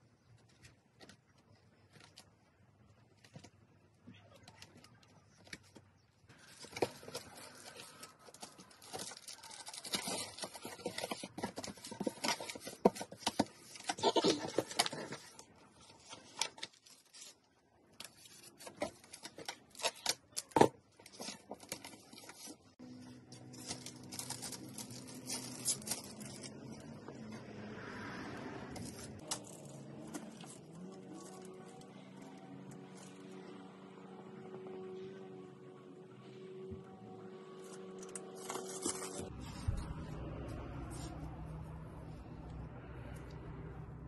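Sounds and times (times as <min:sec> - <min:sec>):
packaging rustling and tearing: 0:06.3 - 0:26.9, 0:37.6 - 0:39.8.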